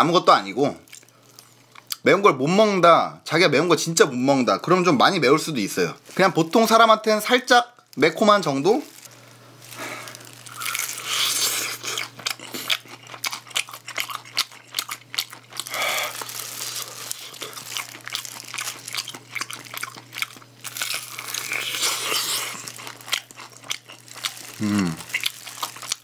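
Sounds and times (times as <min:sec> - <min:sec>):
plastic gloves crinkling: 0:05.3 - 0:26.0
crunchy food chewing: 0:08.7 - 0:26.0.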